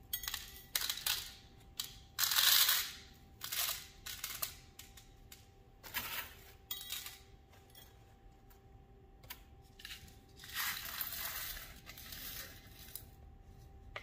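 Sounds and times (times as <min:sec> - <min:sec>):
glass pieces clinking and rattling: 0:00.0 - 0:03.0, 0:06.7 - 0:08.0.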